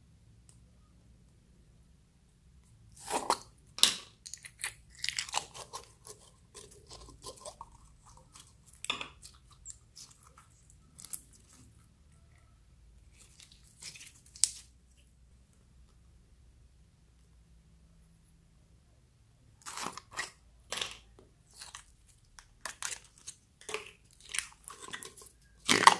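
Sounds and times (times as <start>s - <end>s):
slime crackling and squishing: 4.3s - 11.8s, 13.0s - 14.8s, 19.6s - 25.9s.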